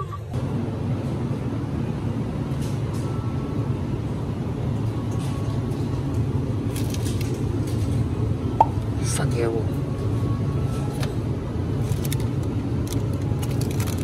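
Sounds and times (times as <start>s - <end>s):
vehicle engine rumble: 0.0s - 14.0s.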